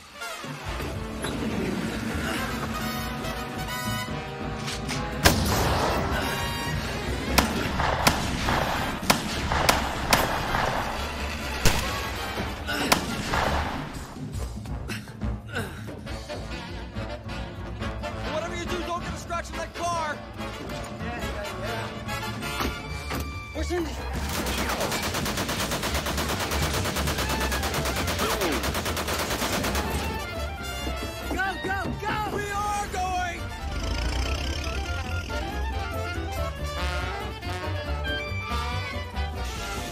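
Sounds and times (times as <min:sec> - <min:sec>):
film score music: 0:00.0 - 0:39.9
machine gun firing: 0:07.2 - 0:14.1, 0:24.2 - 0:30.3
handgun shots: 0:07.3 - 0:14.0.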